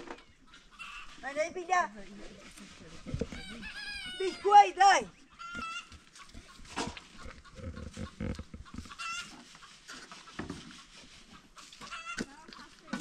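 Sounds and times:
chickens clucking: 0.0s - 1.6s, 5.1s - 13.0s
farmyard animal noises: 0.0s - 13.0s.

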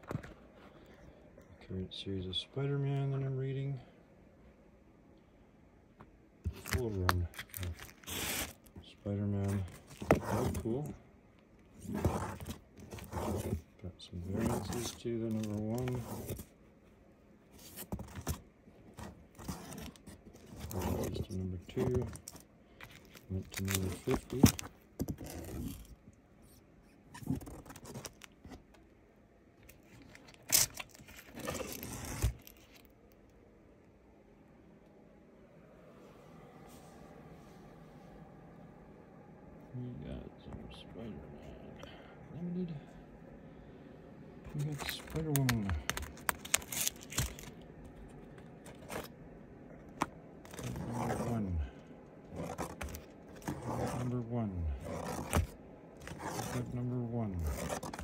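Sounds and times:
comic books rustling: 6.5s - 11.0s, 11.6s - 16.6s, 17.5s - 28.8s, 29.6s - 33.0s, 44.4s - 49.2s, 49.8s - 58.0s.

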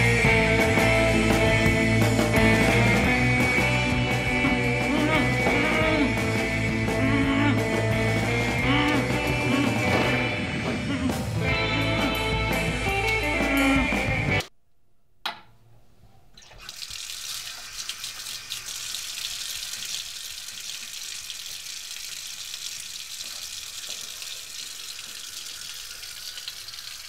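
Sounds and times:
music: 0.0s - 14.5s
tap water splashing into sink: 16.4s - 27.0s.

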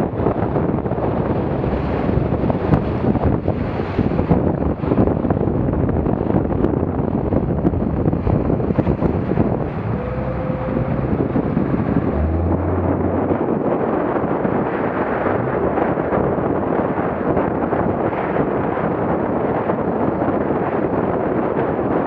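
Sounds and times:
hull slapping waves: 0.0s - 22.0s
wind buffeting microphone: 0.0s - 22.0s
low hum: 7.7s - 16.4s.

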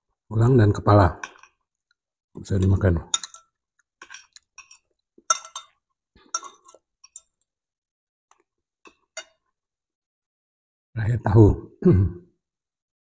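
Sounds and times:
cutlery clinking on plate: 3.1s - 7.4s.

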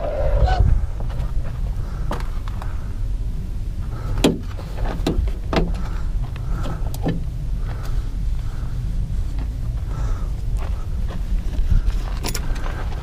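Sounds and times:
steady low rumble: 0.0s - 13.0s
knocks and clicks inside van: 4.2s - 8.0s.

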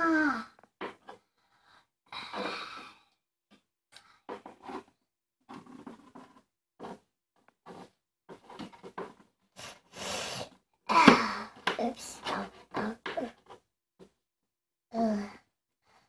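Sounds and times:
plastic toys rustling on wooden shelf: 4.2s - 10.0s, 11.0s - 13.6s.

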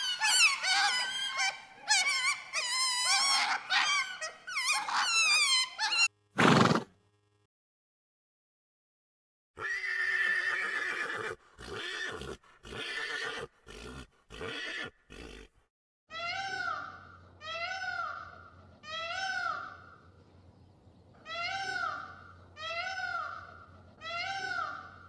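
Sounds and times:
rising and falling animal calls: 0.0s - 6.1s
horse whinnying: 0.0s - 6.9s, 9.6s - 15.6s.

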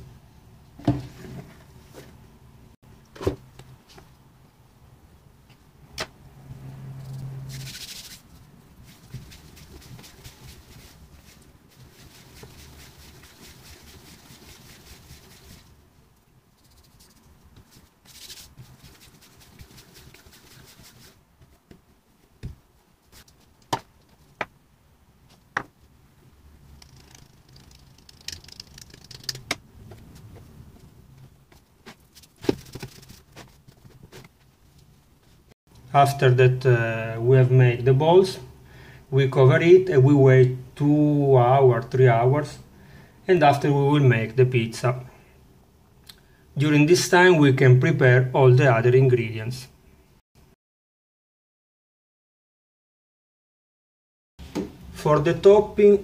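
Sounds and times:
hands rubbing dough: 7.5s - 15.8s, 16.5s - 24.5s, 26.7s - 34.5s.

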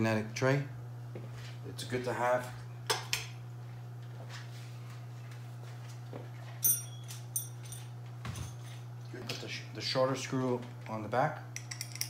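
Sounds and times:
steady low hum: 0.0s - 12.0s
metal screws clinking: 11.6s - 12.0s.

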